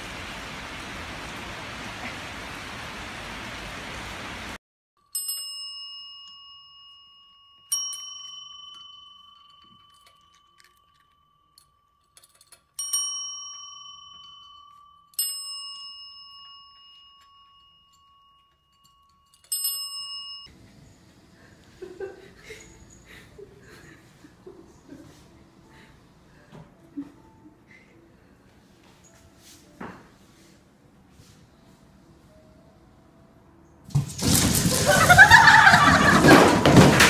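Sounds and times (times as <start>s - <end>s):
desk service bell dings: 5.2s - 11.8s, 12.8s - 20.5s.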